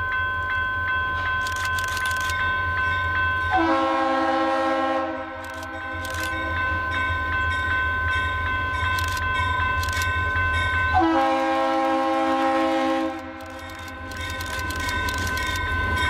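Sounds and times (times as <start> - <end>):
crossing bell ringing: 0.0 - 16.0
locomotive air horn: 3.5 - 5.4, 10.9 - 13.4.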